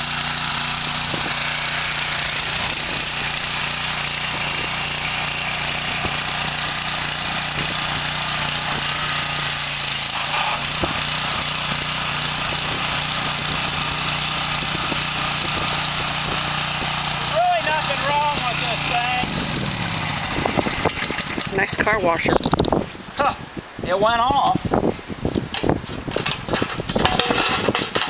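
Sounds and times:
pressure washer engine drone: 0.0 - 22.3.

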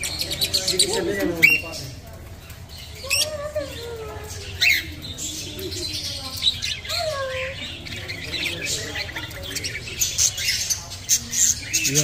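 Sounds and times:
birds chirping: 0.0 - 12.0
birds shrieking: 0.0 - 12.0.

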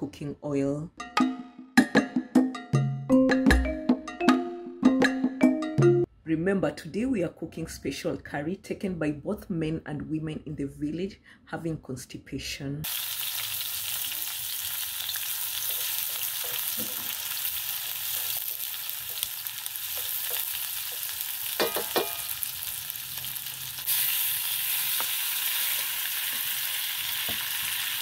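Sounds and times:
onions sizzling in oil: 12.8 - 28.0
wooden spoon knocking on pan: 16.4 - 17.2, 19.9 - 22.3.

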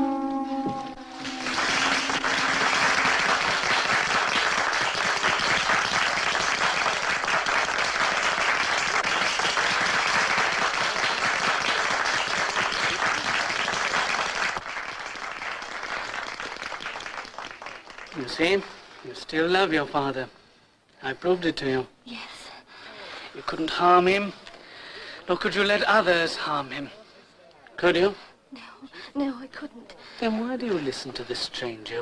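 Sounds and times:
held musical chord: 0.0 - 3.6
audience clapping: 0.8 - 19.2.

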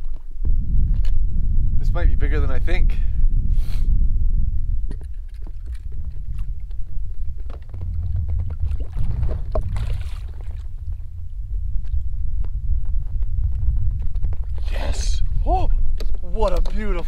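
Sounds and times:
steady low rumble: 0.0 - 17.0
water splashing: 5.0 - 12.0.

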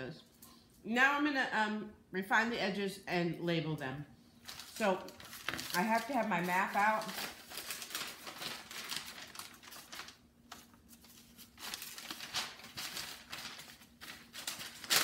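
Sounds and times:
paper sheets rustling and crinkling: 4.4 - 15.0.

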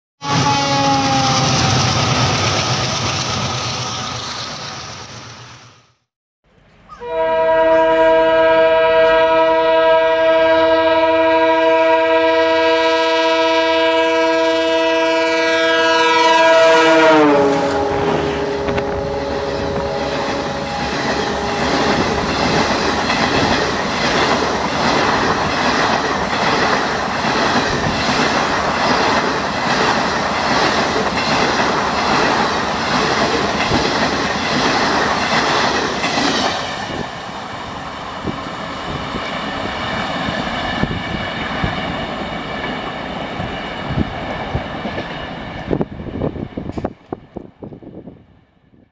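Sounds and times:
locomotive horn chord: 0.2 - 1.6, 7.0 - 22.5
train wheels clattering over rail joints: 20.7 - 37.0.

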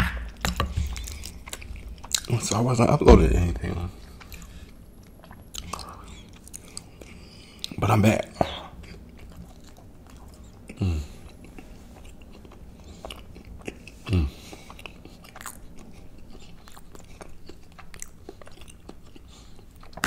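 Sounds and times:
mouth chewing food: 0.2 - 20.0
low thuds: 3.0 - 3.8.

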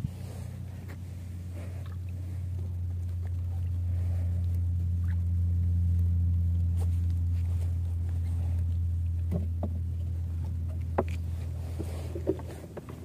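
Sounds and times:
boat engine humming: 0.0 - 13.0.

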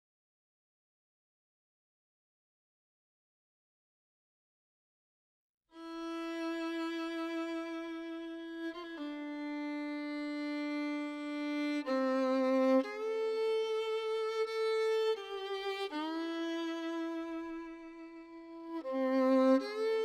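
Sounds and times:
solo violin slow melody: 5.7 - 20.0.

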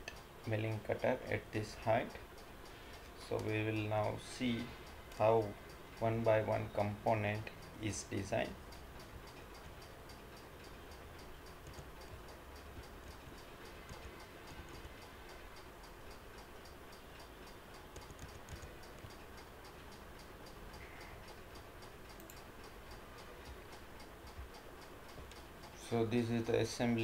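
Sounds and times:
faint steady ticking: 0.0 - 27.0
low room hiss: 0.0 - 27.0.

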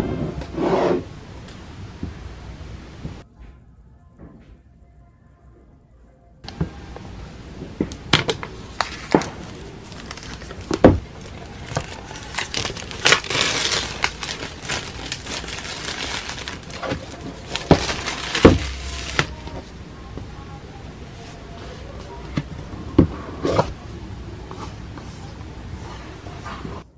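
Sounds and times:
plastic wrap crinkling: 8.1 - 19.7.

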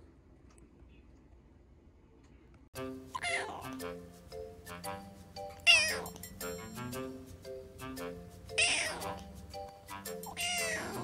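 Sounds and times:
background music with plucked notes: 2.8 - 11.0
kitten meowing: 3.2 - 3.7, 5.7 - 6.2, 8.6 - 9.2, 10.4 - 11.0.

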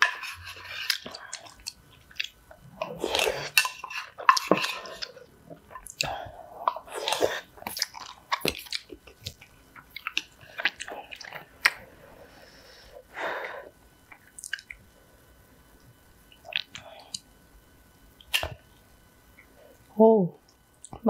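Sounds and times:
chewing with wet mouth sounds: 0.1 - 12.6, 14.1 - 15.0, 15.9 - 17.3.

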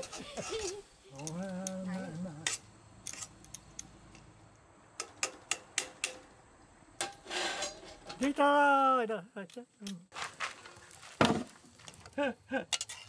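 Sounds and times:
scraping rustle: 7.1 - 8.3, 10.1 - 12.1
utensils clinking against pans: 12.7 - 13.0.

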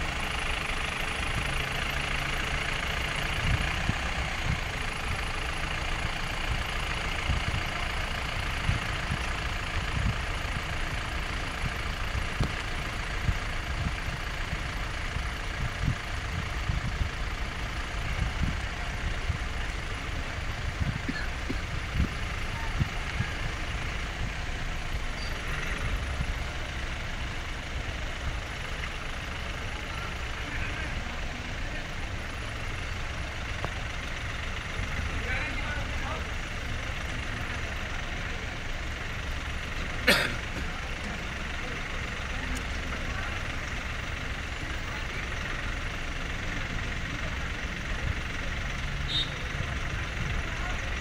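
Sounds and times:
vehicle engine rumbling: 0.0 - 51.0.

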